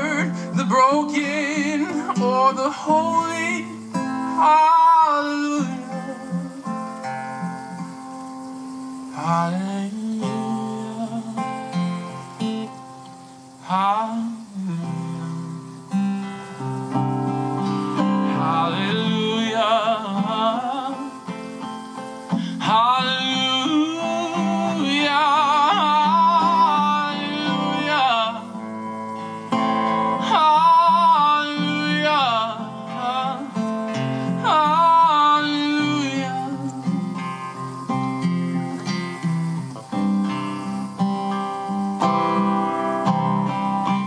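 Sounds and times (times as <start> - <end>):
man singing with vibrato: 0.0 - 7.8, 9.0 - 12.2, 13.6 - 16.0, 17.6 - 38.0
acoustic guitar: 0.0 - 44.0.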